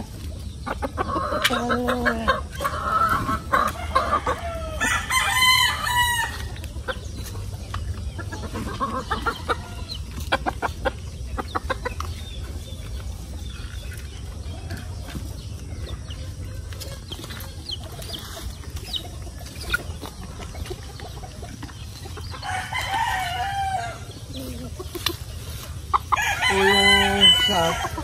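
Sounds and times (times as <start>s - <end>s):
chickens calling: 0.0s - 28.0s
rooster crowing: 3.1s - 6.5s, 22.4s - 24.1s, 26.1s - 28.0s.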